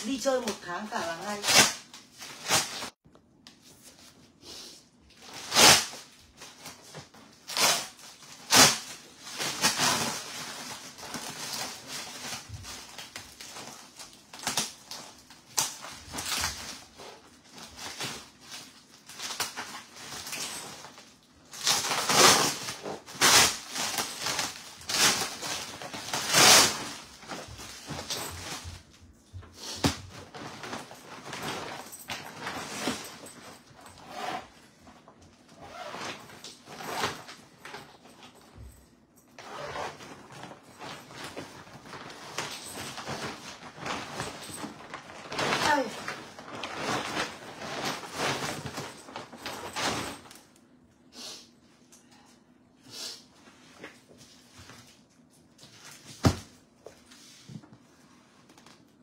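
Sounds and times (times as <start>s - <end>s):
plastic wrap ripping: 5.1s - 28.7s, 39.6s - 50.4s
plastic wrap crinkling: 5.1s - 29.0s, 39.5s - 50.6s.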